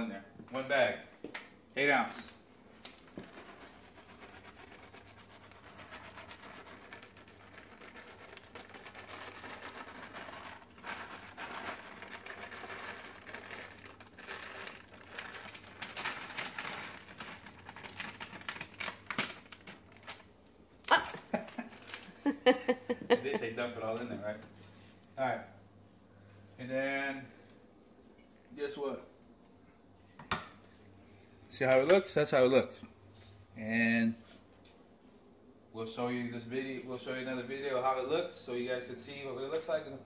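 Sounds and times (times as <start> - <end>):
plastic bag crinkling: 2.9 - 22.4
shredded cheese pouring: 3.2 - 20.2.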